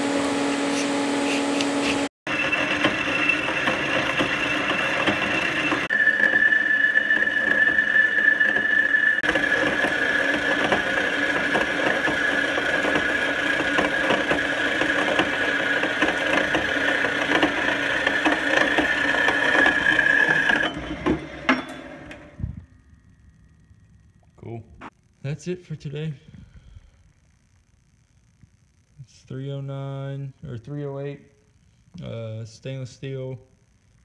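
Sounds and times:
band saw blade squealing: 2.3 - 10.3
saw motor running: 2.3 - 22.4.

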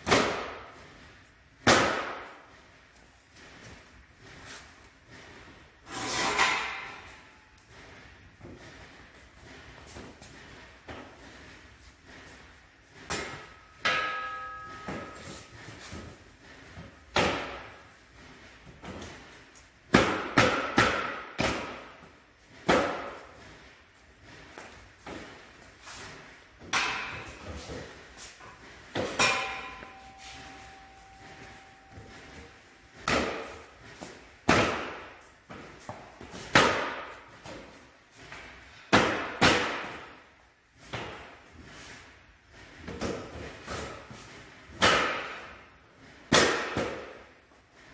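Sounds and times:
floor panels slamming with echo: 0.0 - 0.8, 1.6 - 2.4, 19.9 - 22.0, 28.8 - 32.4, 33.0 - 35.8, 36.4 - 37.8, 38.8 - 40.2, 46.3 - 47.2.

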